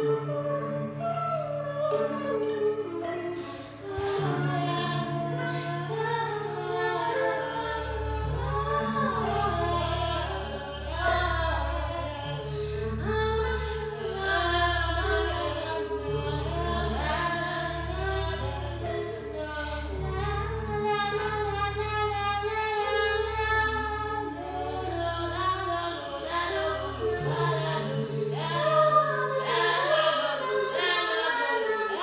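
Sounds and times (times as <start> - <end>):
women singing wordlessly: 24.4 - 32.0.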